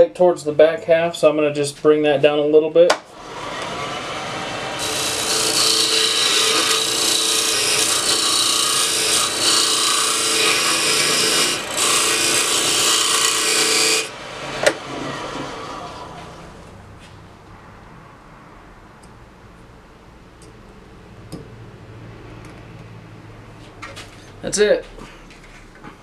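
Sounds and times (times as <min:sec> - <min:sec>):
lathe scraper cutting wood: 0:03.1 - 0:16.1
lathe motor hum: 0:03.2 - 0:16.4.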